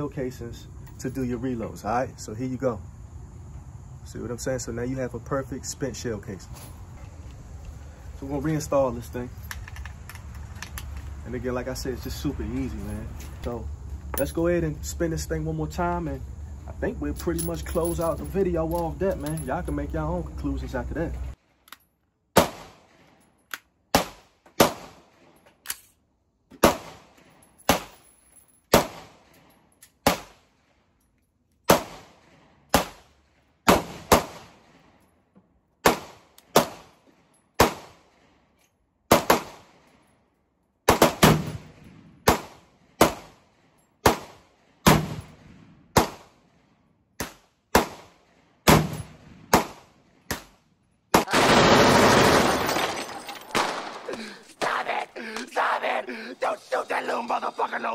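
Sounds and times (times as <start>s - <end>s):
pistol gunshots: 22.3s - 23.0s, 23.9s - 25.1s, 26.6s - 28.0s, 28.7s - 29.3s, 30.0s - 30.4s, 31.7s - 34.8s, 35.8s - 36.9s, 37.6s - 38.1s, 39.1s - 39.8s, 40.9s - 43.4s, 44.0s - 46.4s, 47.2s - 52.6s.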